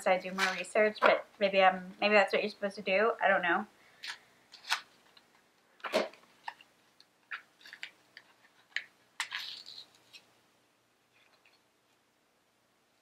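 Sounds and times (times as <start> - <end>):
packet crinkling: 7.3 - 10.3.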